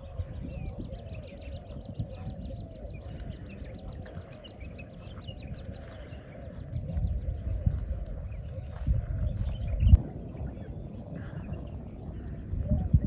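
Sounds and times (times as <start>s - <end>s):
birds calling and chattering: 0.0s - 13.0s
low rumble: 2.9s - 13.0s.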